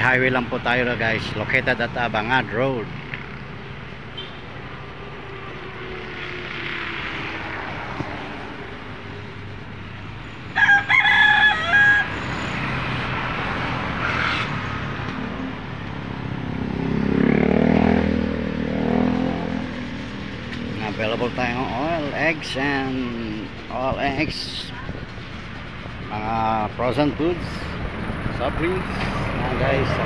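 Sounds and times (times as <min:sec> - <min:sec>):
vehicle passing: 0:00.0 - 0:30.0
rooster crowing: 0:10.5 - 0:12.5.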